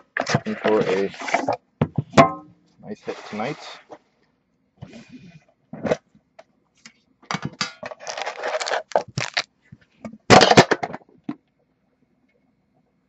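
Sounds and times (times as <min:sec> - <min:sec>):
foil pack crinkling: 0:07.9 - 0:09.5.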